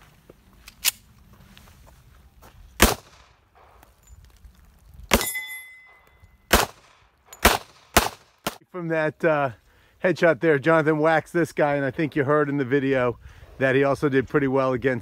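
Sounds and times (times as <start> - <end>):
pistol shots: 2.8 - 3.8, 5.1 - 5.4, 6.5 - 8.6
bullet ringing steel target: 5.1 - 8.2.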